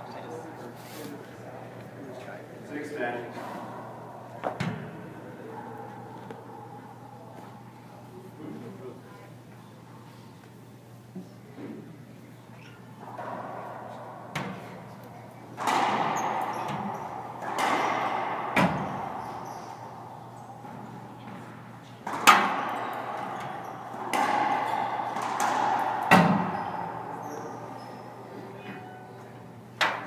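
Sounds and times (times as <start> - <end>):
racquetball hits echoing: 3.6 - 7.7, 13.0 - 29.0.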